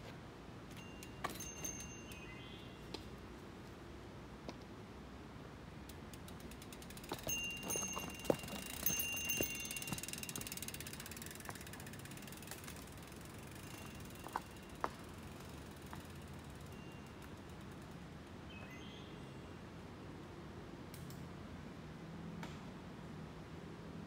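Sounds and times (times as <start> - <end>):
bike freehub ticking: 5.9 - 17.9.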